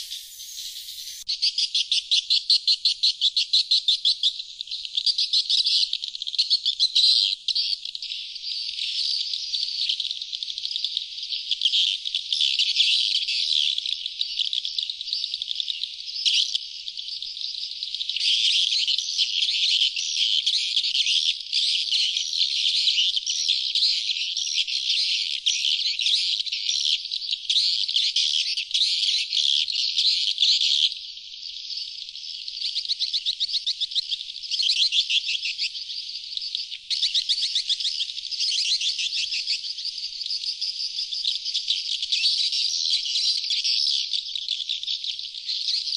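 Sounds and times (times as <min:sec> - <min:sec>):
swiftlets twittering chirps: 0:00.0 - 0:01.5.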